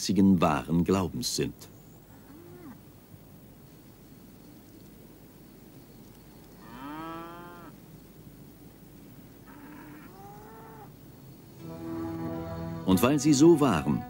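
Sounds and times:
cattle mooing: 6.6 - 7.7, 9.5 - 10.9.

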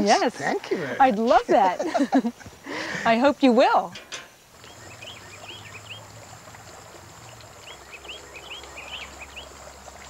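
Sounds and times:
fountain water trickling: 0.0 - 10.0
small birds chirping: 4.6 - 10.0.

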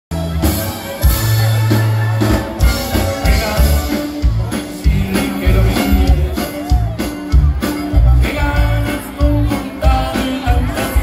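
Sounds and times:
accordion: 0.1 - 11.0
live band playing: 0.1 - 11.0
strong drum beats: 0.1 - 11.0.

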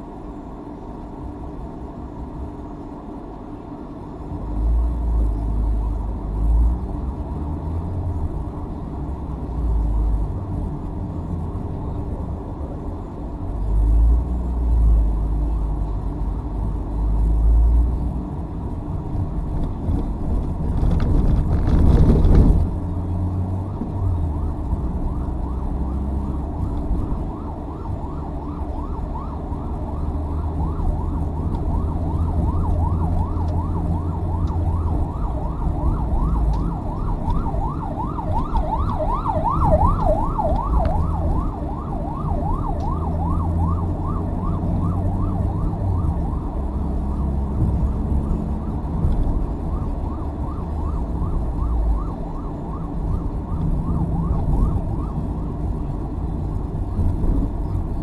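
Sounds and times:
car engine and tyre noise: 0.0 - 58.0
ambulance siren yelping: 23.9 - 58.0.

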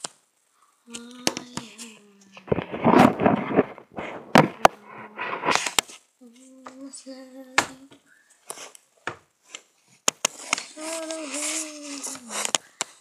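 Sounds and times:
person humming: 0.8 - 2.7, 4.6 - 5.6, 6.2 - 8.0, 10.6 - 12.5
rubbing: 2.4 - 6.0.

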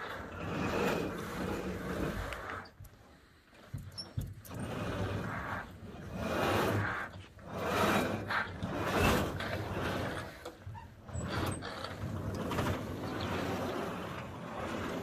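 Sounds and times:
partition wall sliding scrape: 0.0 - 15.0.

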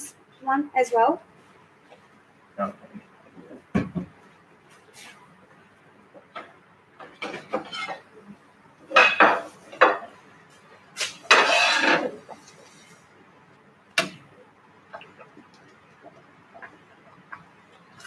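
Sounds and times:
pans and utensils clinking: 8.9 - 10.1, 11.0 - 12.4.

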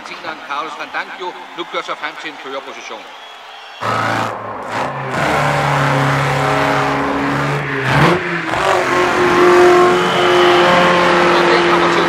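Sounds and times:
racing car engine running fast: 3.8 - 12.0.

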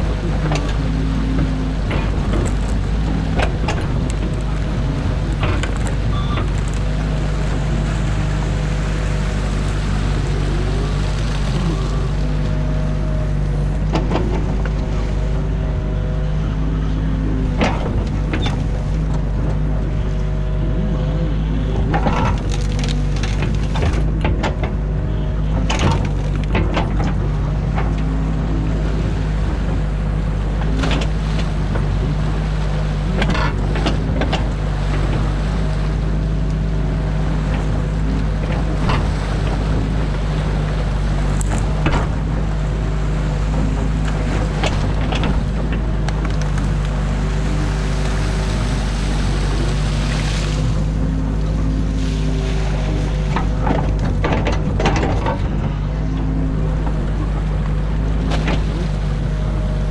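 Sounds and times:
diesel engine running: 0.0 - 59.9
hydraulics whining: 0.0 - 59.9
sticks cracking and knocking: 22.3 - 24.0.

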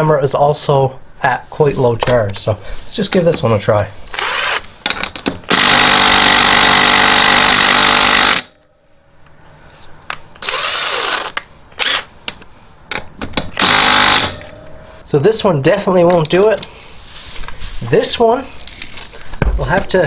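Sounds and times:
impact driver hammering: 5.5 - 8.5, 13.4 - 14.7.

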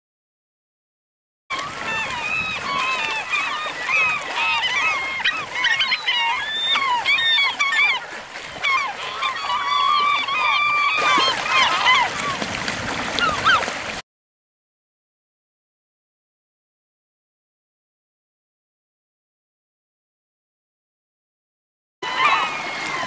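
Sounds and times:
gulls calling: 1.5 - 14.0, 22.0 - 23.0.

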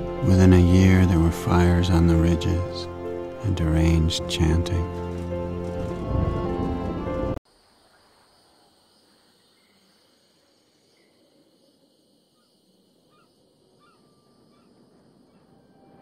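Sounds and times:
music: 0.0 - 7.4
high insect drone: 7.5 - 16.0.

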